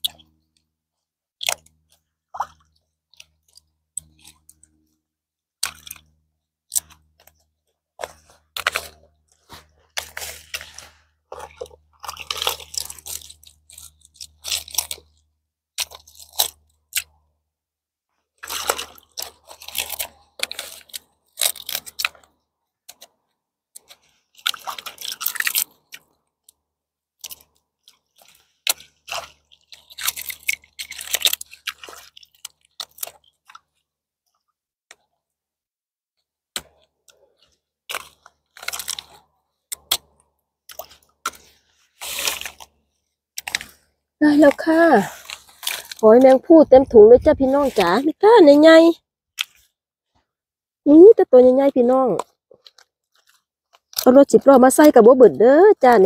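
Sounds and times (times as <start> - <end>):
mussel shells crunching and clattering: 5.6 - 6.1, 8.0 - 17.2, 18.4 - 23.2, 23.8 - 33.8, 36.5 - 48.7, 49.4 - 49.7.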